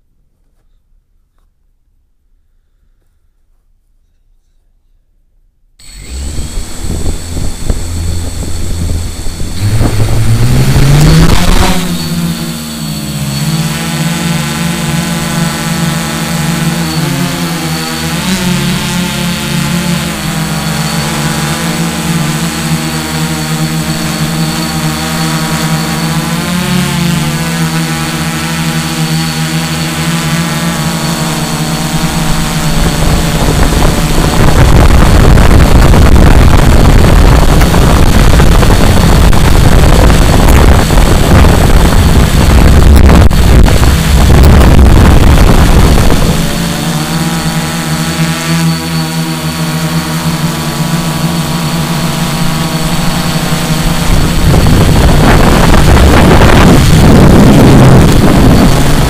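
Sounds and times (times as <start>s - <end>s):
drone motors whining: 5.8s - 59.0s
wind rush on microphone: 5.9s - 12.8s, 31.7s - 47.2s, 51.0s - 59.0s.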